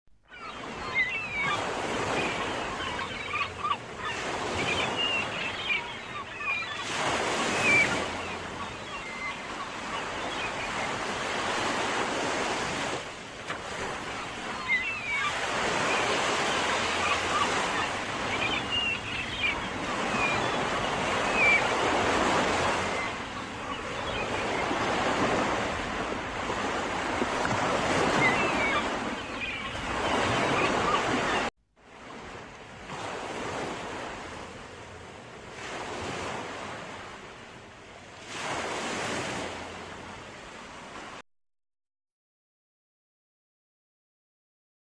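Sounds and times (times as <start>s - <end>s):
ocean waves breaking: 0.3s - 41.2s.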